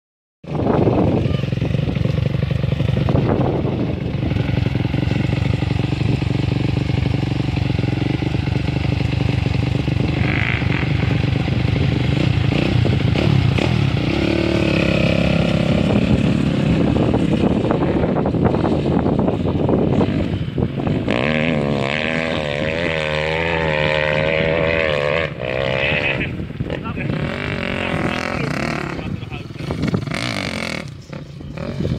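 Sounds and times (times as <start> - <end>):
dirt bike engine idling: 0.5 - 21.1.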